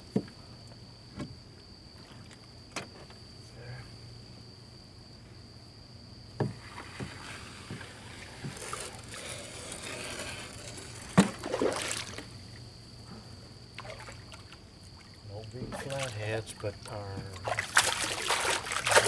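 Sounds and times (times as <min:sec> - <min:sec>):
water splashing and sloshing: 0:10.7 - 0:12.6, 0:13.7 - 0:19.0
loud splash: 0:17.4 - 0:19.0.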